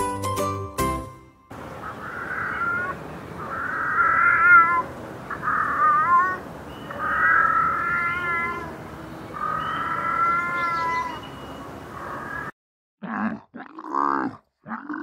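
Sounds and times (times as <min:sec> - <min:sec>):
animal high-pitched cries: 0:01.8 - 0:08.8, 0:09.4 - 0:11.2.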